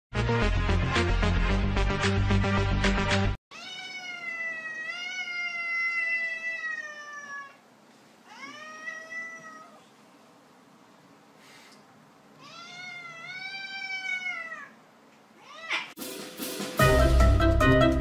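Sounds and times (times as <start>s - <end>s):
cat meowing: 3.5s - 7.6s, 8.3s - 9.8s, 12.4s - 14.8s, 15.4s - 16.0s.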